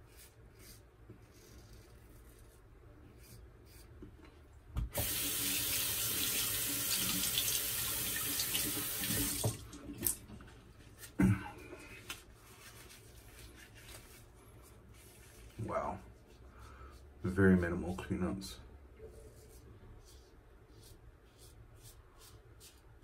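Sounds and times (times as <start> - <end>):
tap running into a sink: 8.2 - 10.2.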